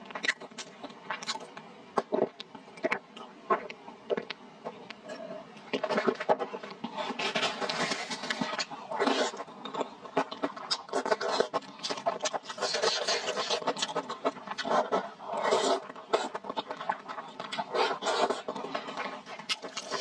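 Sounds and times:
chewing with wet smacks: 15.8 - 17.7, 18.3 - 20.0.

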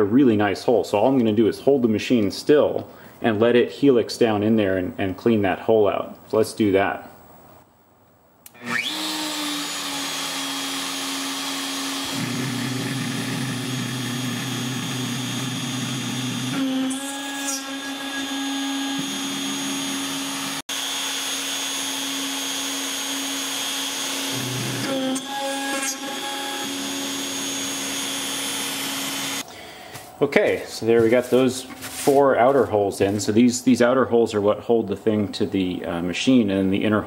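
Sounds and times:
lower rough cutting tone: 8.5 - 20.8
end mill cutting aluminum: 8.5 - 29.4
router whining: 8.5 - 29.5.

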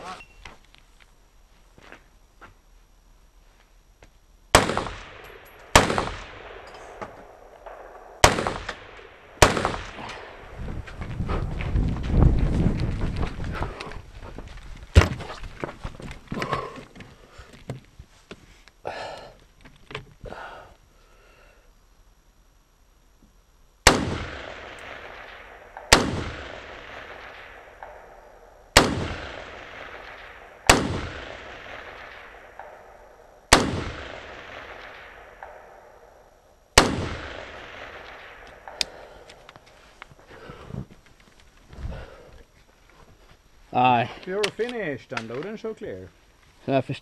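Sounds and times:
rifle shots with echo: 4.5 - 10.6, 23.8 - 39.3.

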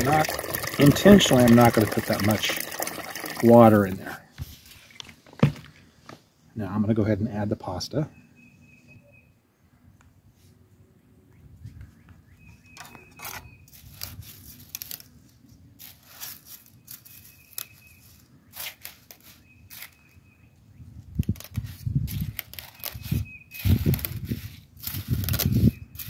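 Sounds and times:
dry spaghetti clicking and rustling: 13.7 - 19.9, 21.2 - 26.0.

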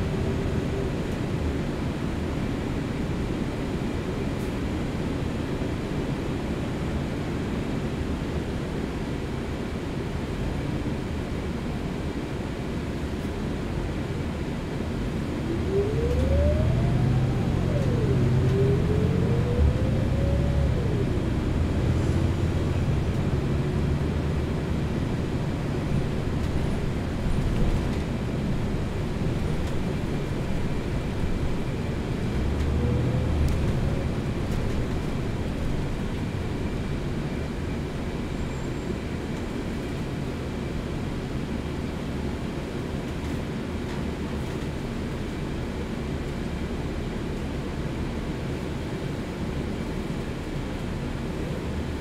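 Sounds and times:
bus engine and road rumble: 0.0 - 52.0
transmission whine: 15.0 - 37.4.

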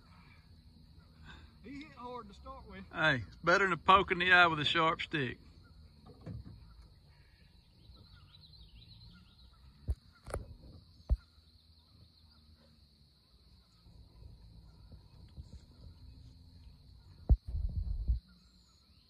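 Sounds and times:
birds chirping faintly: 0.0 - 19.0
steady high-pitched hiss: 0.0 - 19.0.

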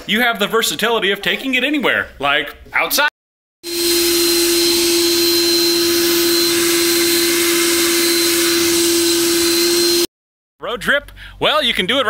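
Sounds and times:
leaf blower running: 3.6 - 10.1.

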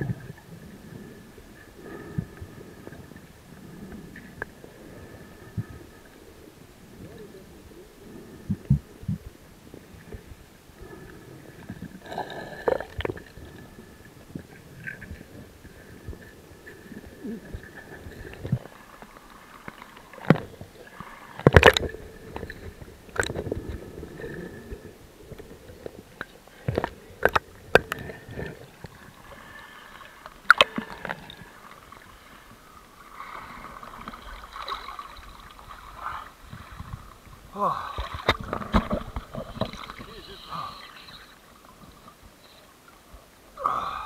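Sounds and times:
underwater gurgling: 0.0 - 44.0
water splashing: 16.9 - 42.2.

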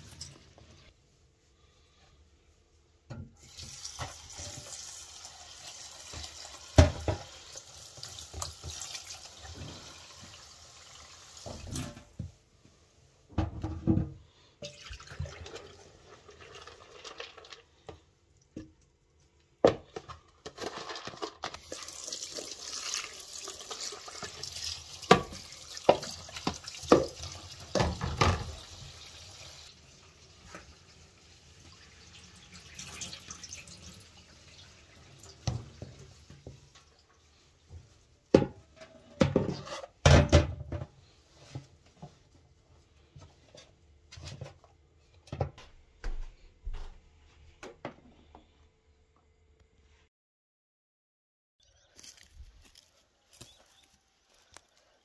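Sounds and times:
tap water running into bowl: 21.6 - 29.0.

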